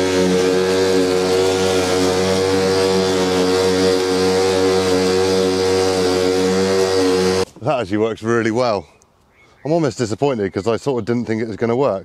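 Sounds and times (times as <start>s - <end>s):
lawn mower cutting grass: 0.0s - 7.5s.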